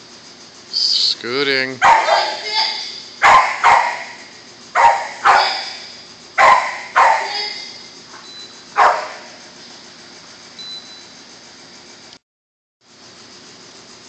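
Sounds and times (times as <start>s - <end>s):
dog barking with echo: 1.8s - 7.8s, 8.8s - 9.3s.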